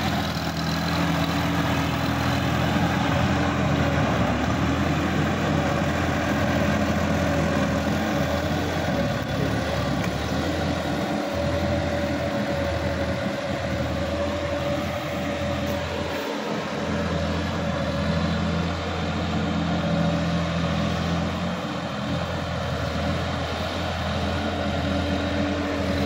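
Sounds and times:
rotary tiller churning mud: 0.0s - 26.0s
tractor diesel engine running: 0.0s - 26.0s.

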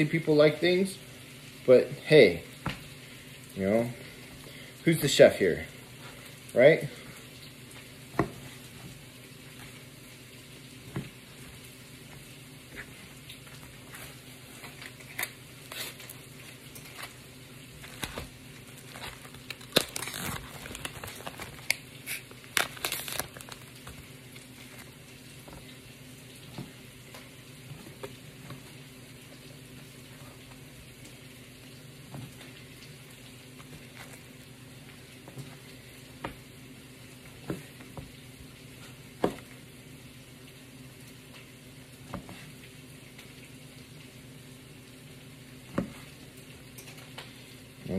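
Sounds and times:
peppers sizzling in a pot: 4.5s - 26.4s.

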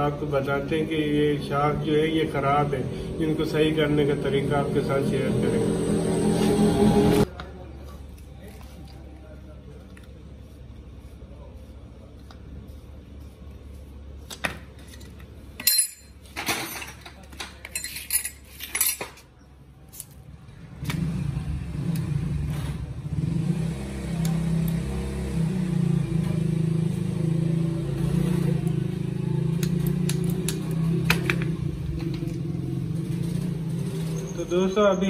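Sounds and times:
steady engine hum: 0.0s - 7.3s, 20.3s - 35.0s
metal parts clinking: 14.9s - 19.3s.

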